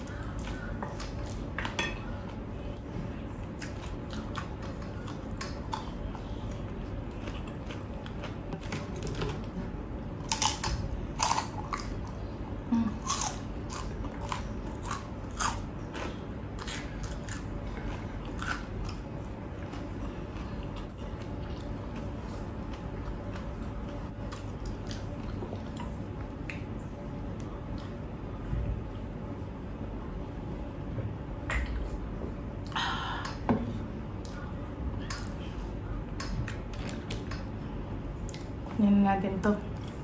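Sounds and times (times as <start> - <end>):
chewing crunchy food: 3.4 - 12.4, 13.0 - 28.2.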